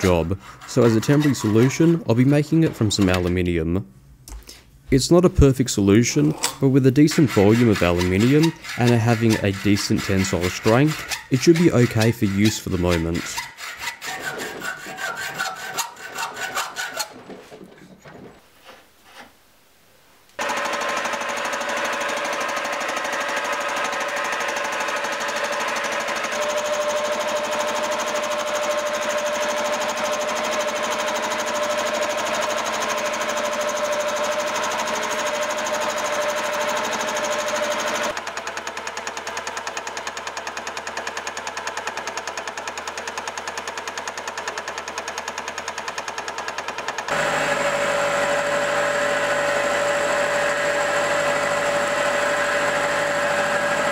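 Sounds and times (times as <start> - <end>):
hacksaw cutting metal: 0.0 - 3.4, 6.4 - 17.3, 20.4 - 53.9
milling machine whining: 20.4 - 43.0, 47.0 - 53.9.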